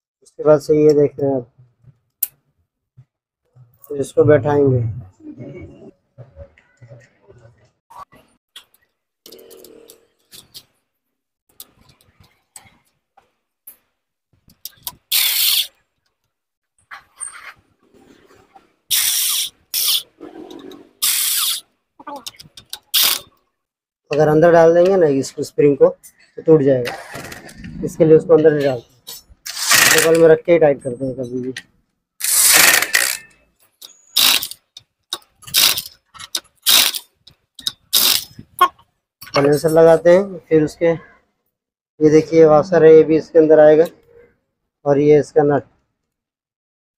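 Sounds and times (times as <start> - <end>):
impact wrench bursts: 14.8 - 15.7, 18.9 - 20.1, 21.0 - 21.6, 22.9 - 23.3, 29.5 - 30.2, 32.2 - 33.3, 34.2 - 34.6, 35.4 - 37.0, 37.6 - 38.4
impact wrench burst: 29.5 - 30.2, 32.2 - 33.3, 34.2 - 34.6, 36.6 - 37.0, 37.9 - 38.3
small metal clicks and knocks: 33.2 - 38.4.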